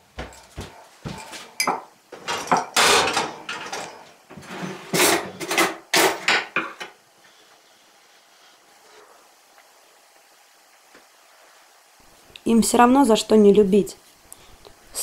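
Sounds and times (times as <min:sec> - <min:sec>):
cutlery clattering: 0:01.6 - 0:04.0, 0:04.6 - 0:06.8.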